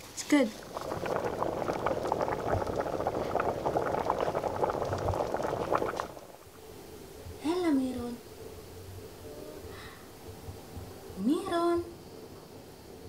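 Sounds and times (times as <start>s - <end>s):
thick stew bubbling and popping: 0.0s - 6.6s.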